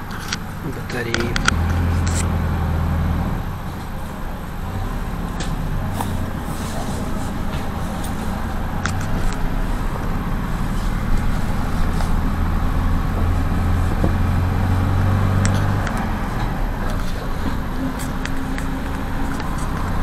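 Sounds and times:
vehicle engine drone: 0.0 - 20.0.

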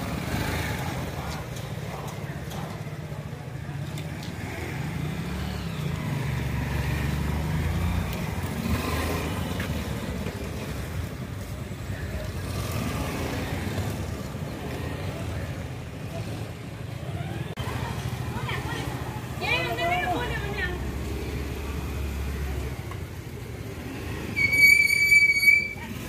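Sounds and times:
motorcycle engine under load: 0.0 - 19.4.

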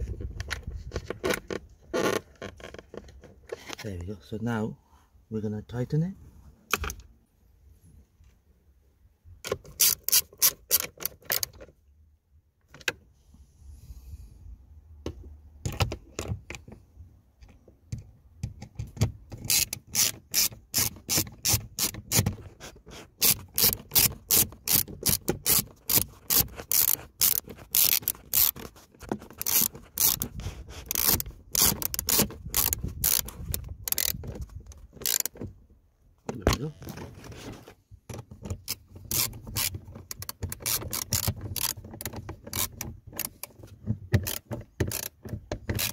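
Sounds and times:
socket ratchet clicking: 9.5 - 11.6, 18.6 - 22.4, 23.2 - 28.7, 29.3 - 35.4, 38.1 - 45.9.

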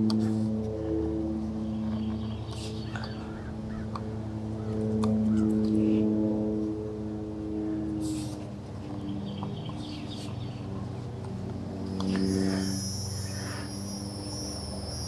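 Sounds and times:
low mechanical hum: 0.0 - 15.0
high insect buzz: 11.9 - 15.0.

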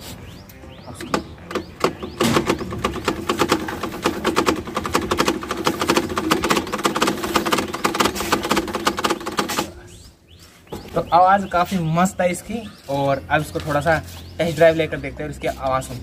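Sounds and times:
plastic card clattering on spokes: 1.8 - 9.7.

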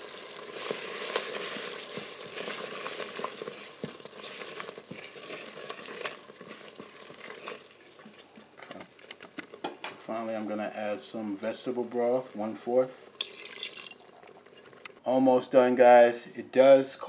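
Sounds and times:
sauce churning and sizzling: 0.0 - 15.4
spatula tapping pot: 1.1 - 7.3.

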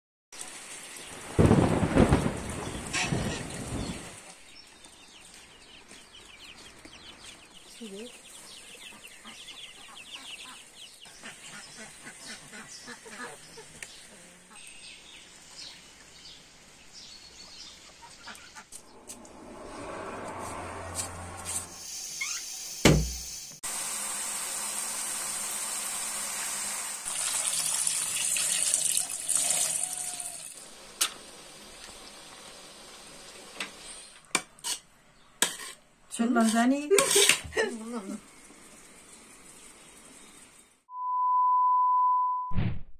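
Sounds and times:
chicks peeping: 2.6 - 14.1
hens clucking: 8.8 - 14.6, 17.9 - 18.9
boiling water hissing: 21.7 - 34.3
tap water running into metal pot: 24.7 - 32.5.

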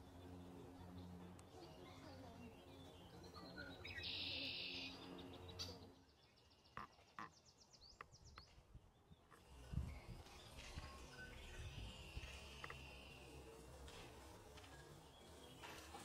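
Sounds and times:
distant bird calls: 0.0 - 16.0
steady low hum: 8.2 - 16.0
dry buzz: 9.4 - 16.0.

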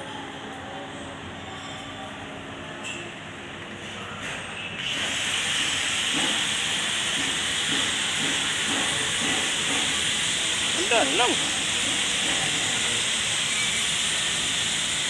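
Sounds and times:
loud steady hiss: 4.9 - 15.0.

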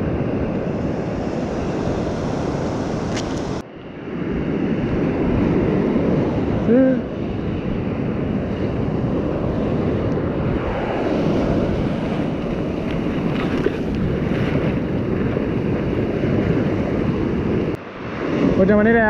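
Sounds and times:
surf breaking on beach: 0.0 - 3.6
wind on microphone: 0.0 - 19.0.

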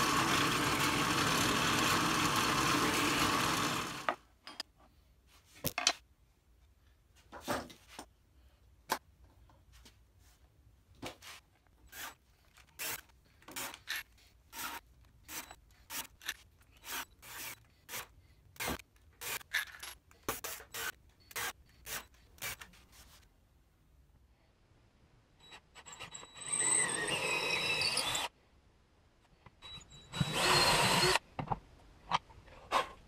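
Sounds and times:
cordless drill boring wood: 0.0 - 4.2, 26.1 - 28.3, 30.1 - 31.2.

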